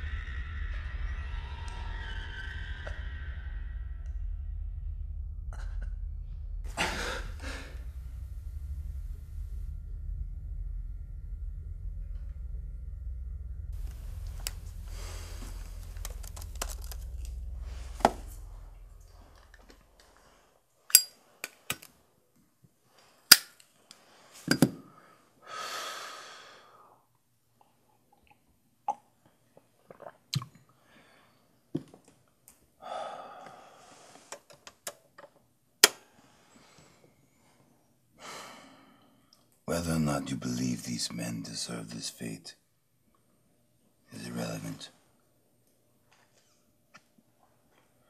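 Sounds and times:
low rumbling drone: 0.0s - 20.4s
man breathing heavily: 6.7s - 8.3s, 14.2s - 20.4s, 24.1s - 27.0s, 32.8s - 34.3s, 38.2s - 39.2s.

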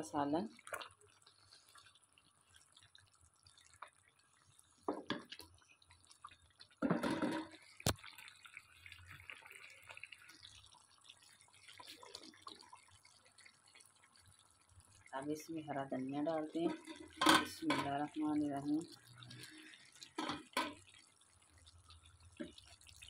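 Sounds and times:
curry bubbling and spitting: 0.5s - 23.0s
spatula stirring and scraping: 16.6s - 17.7s.

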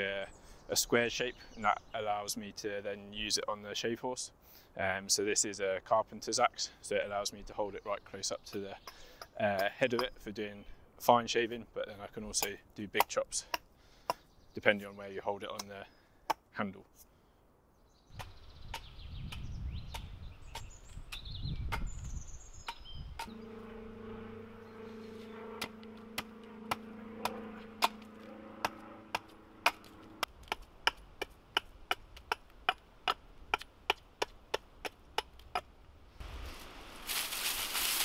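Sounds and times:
low steady tone: 23.2s - 30.3s
axe chopping wood: 30.4s - 35.7s.

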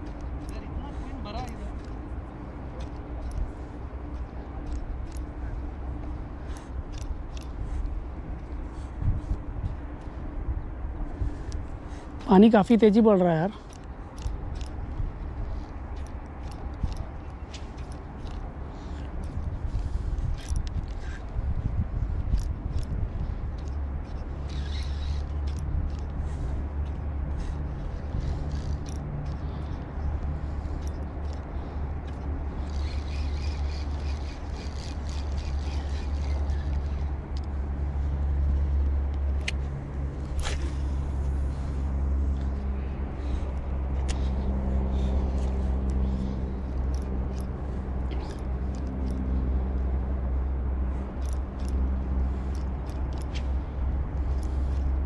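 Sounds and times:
low engine rumble: 0.0s - 55.0s
small clicks: 22.2s - 26.2s, 26.8s - 37.6s, 38.4s - 41.0s, 43.2s - 49.3s, 51.2s - 53.6s.

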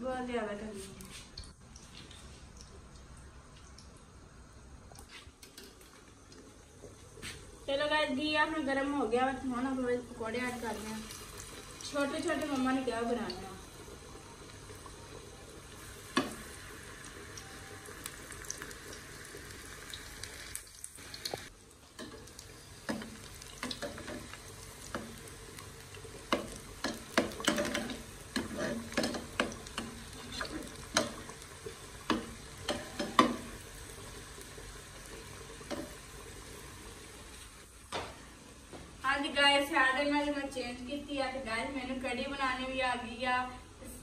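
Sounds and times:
deep-frying sizzle in oil: 0.2s - 44.0s
metal spoon scraping a pan: 26.8s - 31.2s.

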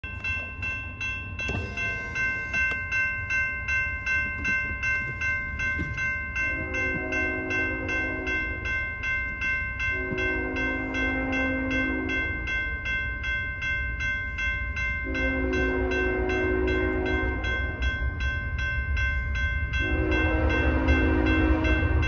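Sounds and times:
crossing warning bell dinging: 0.0s - 22.0s
locomotive horn chord: 6.4s - 8.7s, 9.8s - 12.5s, 15.0s - 17.8s, 19.7s - 22.0s.

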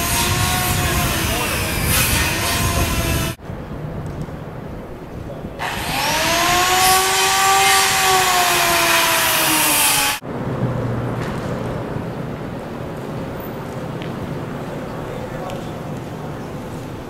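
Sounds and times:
power saw cutting: 0.0s - 3.4s, 5.6s - 10.2s.

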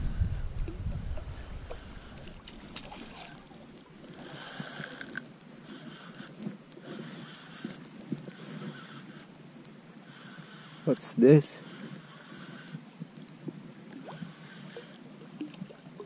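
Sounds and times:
fishing reel whirring and clicking: 1.6s - 13.4s.

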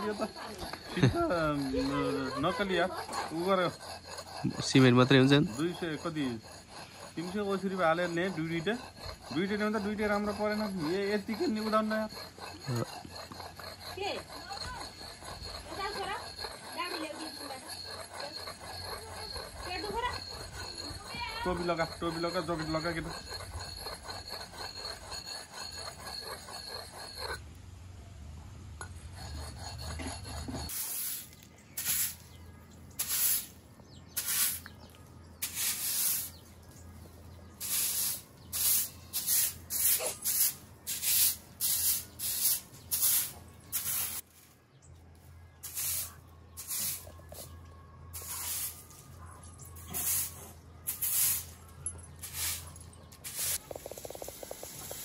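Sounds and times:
broom sweeping concrete floor: 30.7s - 32.3s, 33.0s - 33.6s, 34.2s - 34.6s, 35.4s - 36.4s, 37.6s - 44.6s, 45.6s - 47.5s, 48.2s - 49.0s, 49.8s - 51.6s, 52.2s - 53.7s.

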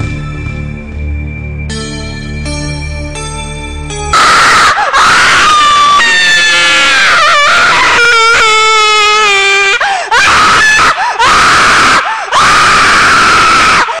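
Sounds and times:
loud distorted scream: 4.1s - 14.0s.

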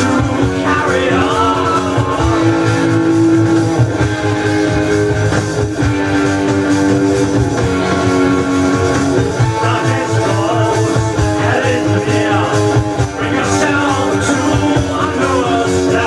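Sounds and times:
person singing: 0.0s - 3.0s, 9.5s - 16.0s
electric guitar: 0.0s - 16.0s
hard rock from vinyl record: 0.0s - 16.0s.

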